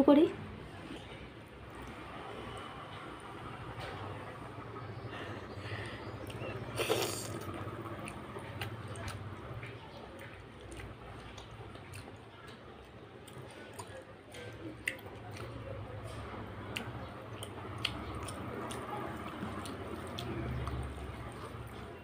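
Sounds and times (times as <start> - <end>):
wet chewing and lip smacks: 5.7 - 22.0
sharp wet clicks: 7.2 - 22.0.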